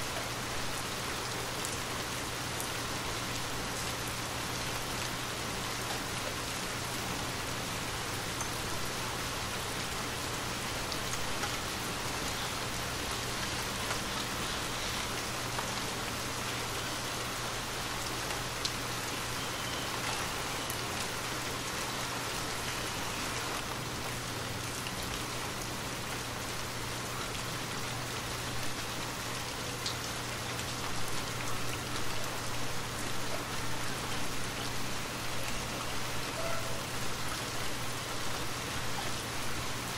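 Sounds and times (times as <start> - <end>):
steady rain hiss: 0.0 - 39.9
rain drop ticks: 29.8 - 32.2.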